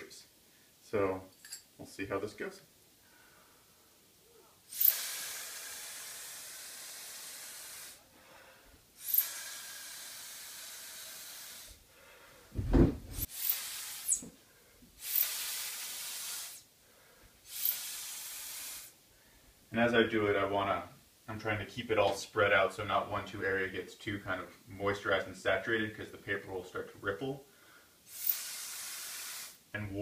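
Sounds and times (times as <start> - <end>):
atomizer spraying hiss: 4.6 - 8.1, 9.0 - 11.8, 13.1 - 16.7, 17.4 - 19.0, 28.0 - 29.8.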